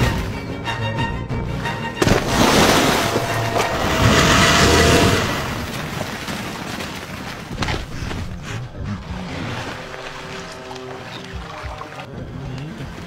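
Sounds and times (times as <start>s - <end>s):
heavy water splash and churning: 2.0s - 12.1s.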